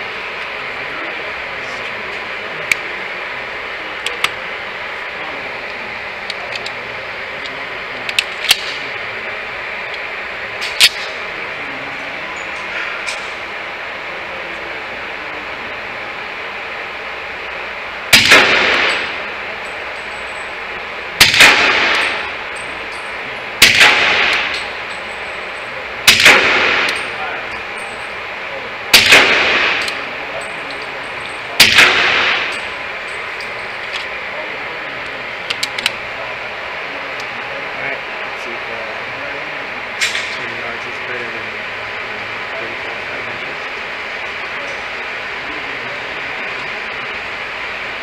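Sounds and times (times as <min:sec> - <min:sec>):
ventilation hiss: 0:00.0 - 0:48.0
suppressed pistol shots: 0:18.1 - 0:19.3, 0:21.2 - 0:22.4, 0:23.6 - 0:24.7, 0:26.1 - 0:27.0, 0:28.9 - 0:30.0, 0:31.6 - 0:32.7
echo of indoor range: 0:18.1 - 0:37.4.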